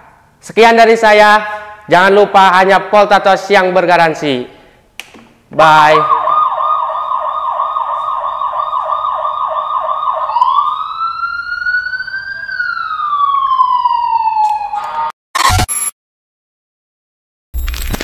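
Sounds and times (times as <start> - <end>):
electronic toy siren: 5.8 - 15.2.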